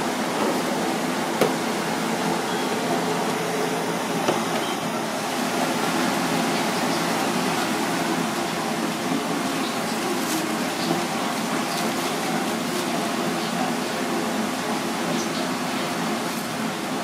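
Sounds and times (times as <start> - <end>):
machine hum and hiss: 0.0 - 17.0.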